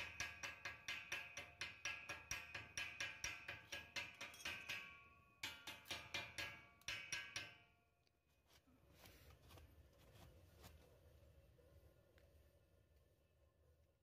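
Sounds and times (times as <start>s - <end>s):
chipping hammer tapping metal: 0.0s - 7.8s.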